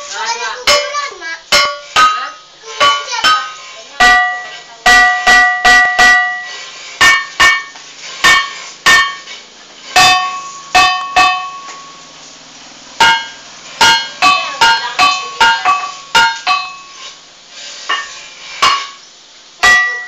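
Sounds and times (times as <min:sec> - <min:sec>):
ringing stones struck: 0:00.7 - 0:09.3, 0:10.0 - 0:12.1, 0:13.0 - 0:17.0, 0:19.6 - 0:20.0.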